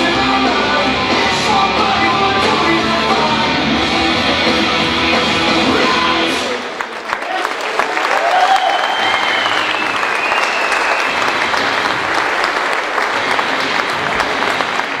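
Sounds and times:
audience applauding and cheering: 0:04.3 - 0:15.0
long whistle: 0:08.6 - 0:11.2.

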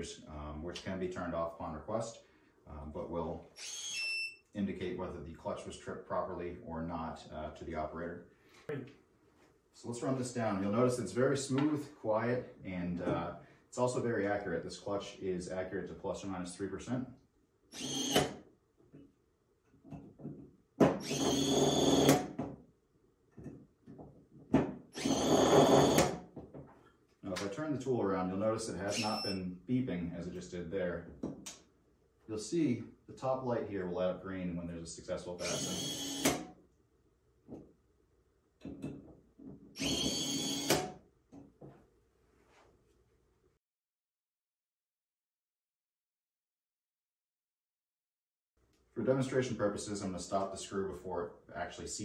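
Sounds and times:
cordless screwdriver whirring: 0:17.8 - 0:18.3, 0:21.0 - 0:22.2, 0:24.9 - 0:26.0, 0:28.9 - 0:29.4, 0:35.4 - 0:36.4, 0:39.8 - 0:40.8.

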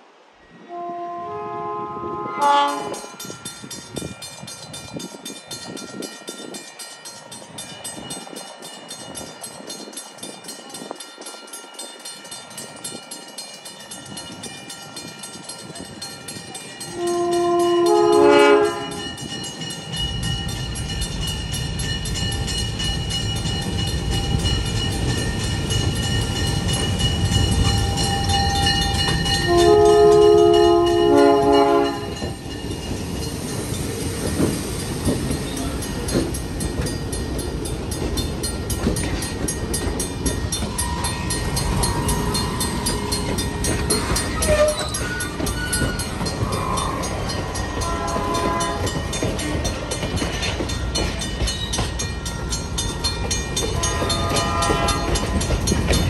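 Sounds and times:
train running past rumble: 0:00.0 - 0:56.0
locomotive air horn blasts: 0:00.6 - 0:03.2, 0:16.9 - 0:19.0, 0:29.5 - 0:32.2, 0:47.8 - 0:49.0, 0:53.8 - 0:55.4.

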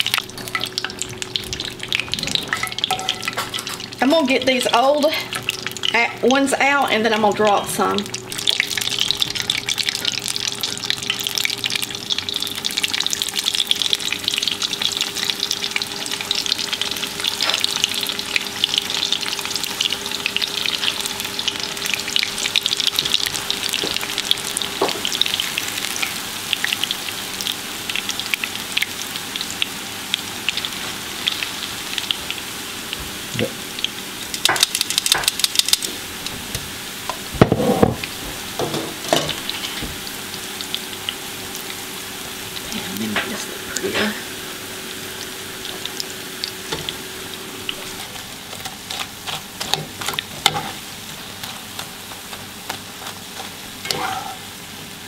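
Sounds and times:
fish deep-frying in oil: 0:00.0 - 0:55.0.

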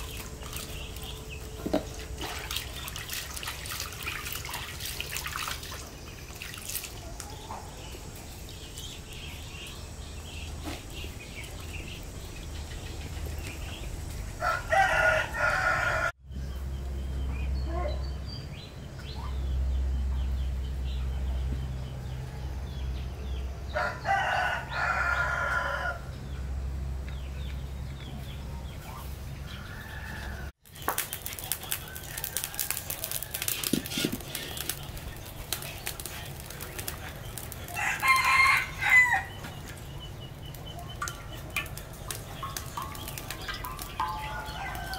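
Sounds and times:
rooster crowing: 0:14.4 - 0:16.2, 0:23.7 - 0:26.1, 0:29.6 - 0:30.5, 0:37.7 - 0:39.4, 0:44.0 - 0:44.9.

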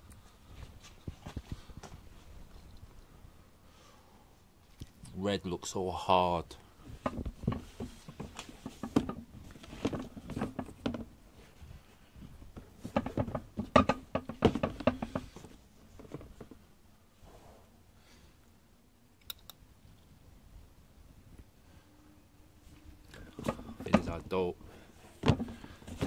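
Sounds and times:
sneakers tapping on cardboard box: 0:12.6 - 0:15.5
sharp clicks: 0:19.2 - 0:19.6.

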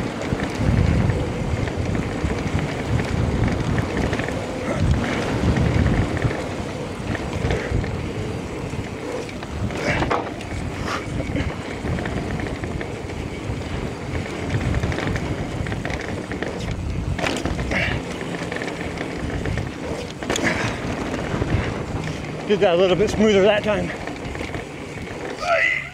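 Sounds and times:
mountain bike rumble and rattle: 0:00.0 - 0:25.9
wind buffeting microphone: 0:00.0 - 0:25.9
bike knocks over bumps: 0:14.5 - 0:22.2.

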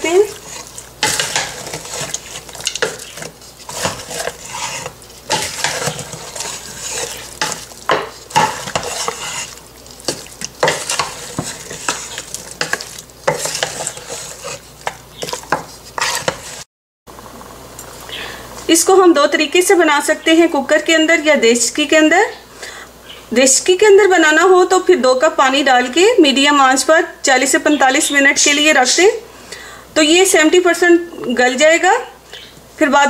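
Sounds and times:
wooden spoon stirring in a pot: 0:00.0 - 0:16.7.

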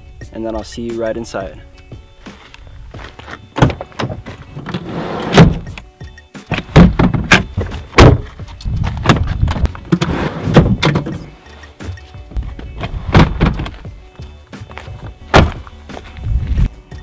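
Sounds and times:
car door opening: 0:03.6 - 0:05.8, 0:12.8 - 0:13.8, 0:15.3 - 0:15.7
seats sliding scrapes: 0:04.5 - 0:05.7, 0:09.9 - 0:10.8
seat levers clacking: 0:06.5 - 0:08.3.

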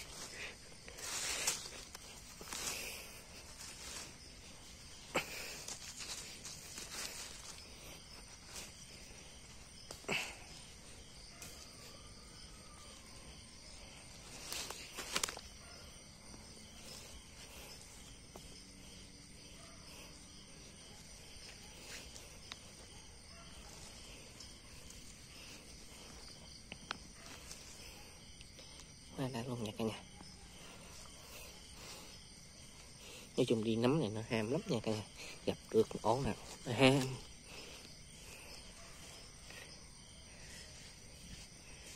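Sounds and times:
dry leaves rustling: 0:00.0 - 0:19.3, 0:19.9 - 0:26.4
night insects chirring: 0:00.0 - 0:41.9.

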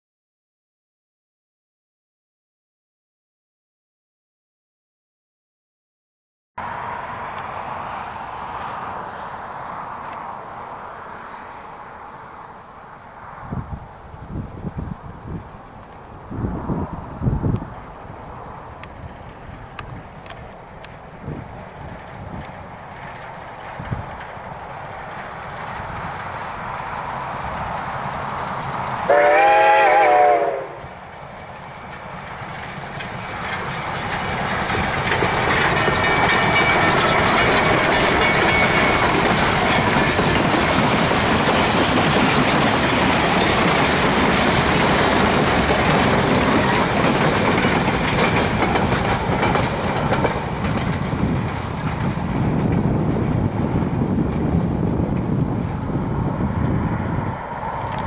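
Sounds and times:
road traffic: 0:06.6 - 0:58.0
train rumbling past: 0:06.6 - 0:58.0
wheels clicking over rail joints: 0:13.8 - 0:29.1, 0:30.7 - 0:56.8
steam locomotive whistle: 0:29.0 - 0:31.0.

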